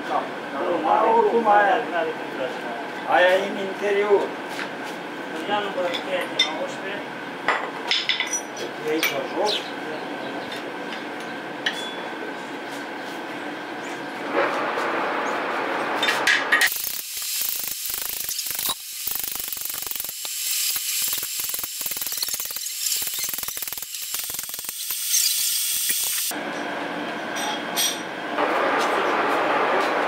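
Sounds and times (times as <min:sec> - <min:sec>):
metallic clicking and rasping: 0:16.6 - 0:26.3.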